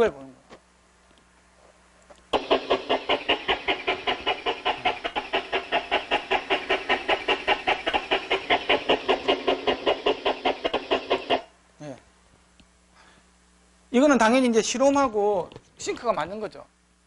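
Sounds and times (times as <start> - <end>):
hissing air puffs from loudspeaker: 2.3 - 11.5.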